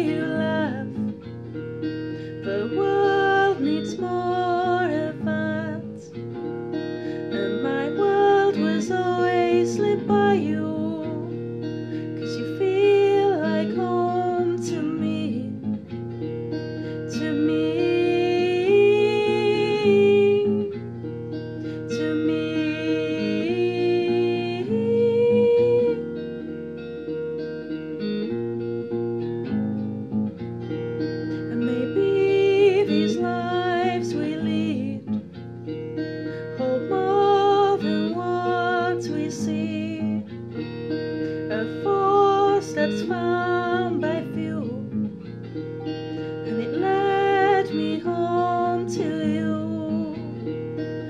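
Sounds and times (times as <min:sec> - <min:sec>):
woman singing: 0:00.0 - 0:26.6, 0:31.1 - 0:51.0
small guitar plucked and strummed: 0:00.0 - 0:51.0.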